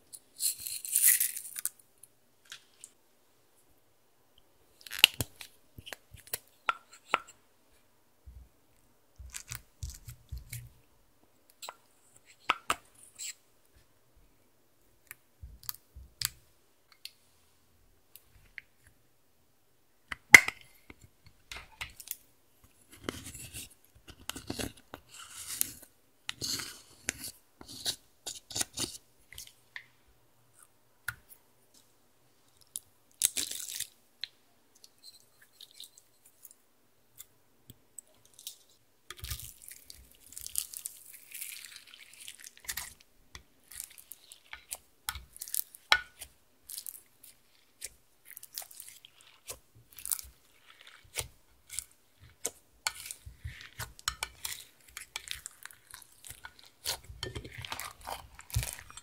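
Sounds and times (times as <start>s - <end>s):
slime squishing and crackling: 39.2s - 43.0s, 43.6s - 59.0s.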